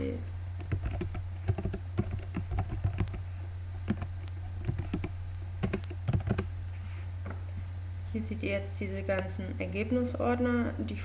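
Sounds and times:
low hum: 0.0 - 11.0
computer keyboard typing: 0.6 - 3.2, 3.8 - 6.5.

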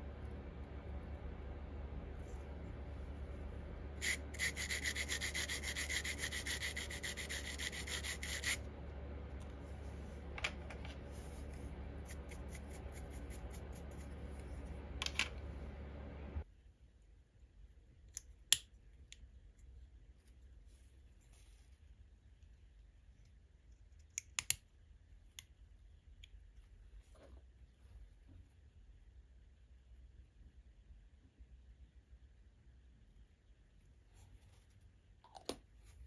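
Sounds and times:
steady low hum: 0.0 - 18.0
sanding plastic: 4.0 - 8.6, 10.9 - 14.8
short scrapes and clicks: 4.0 - 8.6.

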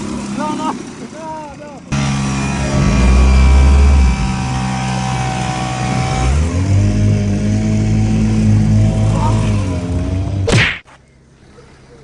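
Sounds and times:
small outboard motor running: 0.0 - 10.5
loud whoosh: 2.3 - 6.5.

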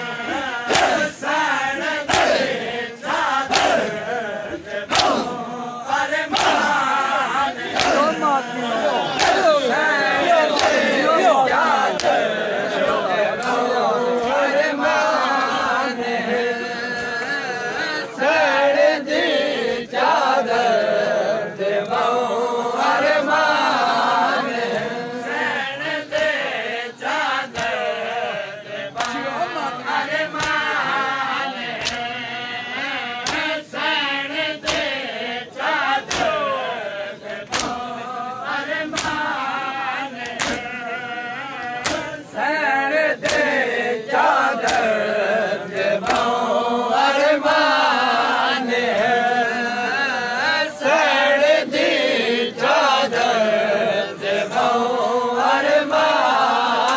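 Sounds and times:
men chanting in unison: 0.0 - 56.9
chest-beating slaps: 0.6 - 1.1, 2.0 - 2.5, 3.3 - 3.9, 4.6 - 5.4, 6.2 - 6.9, 7.6 - 8.2, 9.1 - 9.6, 10.3 - 14.4, 27.5 - 27.9, 29.0 - 29.3, 30.3 - 30.8, 31.7 - 32.1, 33.2 - 33.6, 34.6 - 35.0, 35.8 - 36.5, 37.2 - 38.0, 38.8 - 39.4, 40.2 - 40.8, 41.6 - 42.2, 43.2 - 43.6, 44.5 - 45.0, 45.7 - 46.4.

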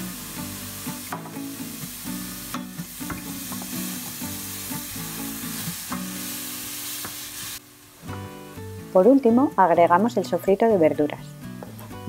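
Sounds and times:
food sizzling in oil: 0.0 - 9.2
soft background music: 0.0 - 12.0.

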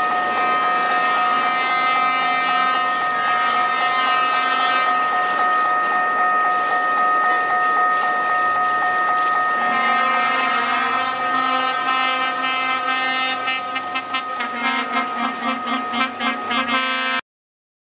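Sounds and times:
train horn blast: 0.0 - 5.3, 9.5 - 17.2
railcar engine: 0.0 - 17.2.

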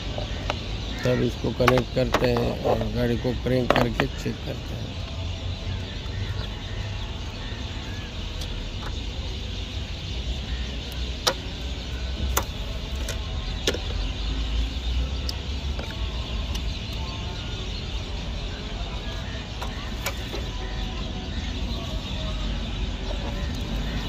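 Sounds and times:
plastic connector clicks and knocks: 1.6 - 2.5, 3.6 - 4.1.

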